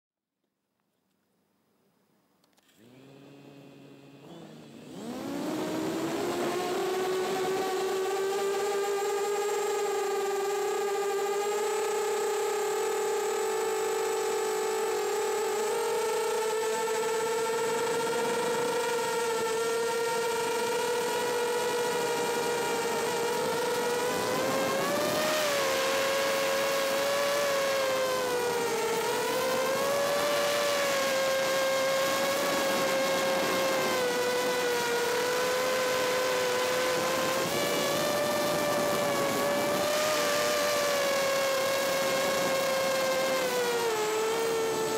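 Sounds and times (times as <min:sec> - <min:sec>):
drone motors whining: 0:02.5 - 0:44.9.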